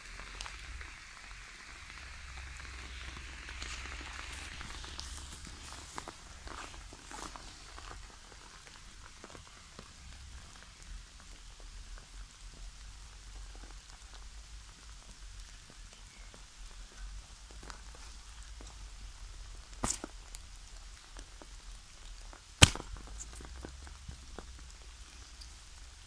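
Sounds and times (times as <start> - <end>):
crackling of sole grinding berries: 19.5 - 26.0.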